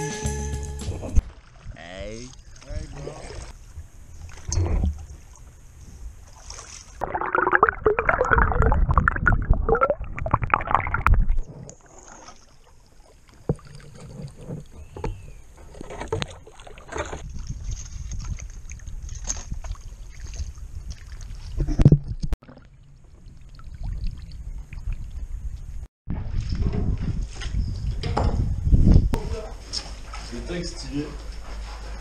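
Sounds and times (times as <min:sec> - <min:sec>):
kayak paddles splashing: 0:01.2 - 0:08.5, 0:10.5 - 0:21.8
loud water churning: 0:06.4 - 0:12.6
water drips: 0:07.0 - 0:12.3.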